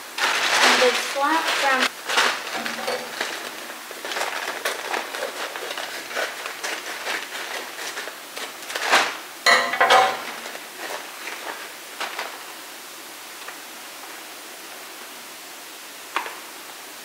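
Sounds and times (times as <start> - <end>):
paper rustling and crinkling: 0.0 - 9.2, 9.9 - 12.6
scissors snipping paper: 0.6 - 9.1.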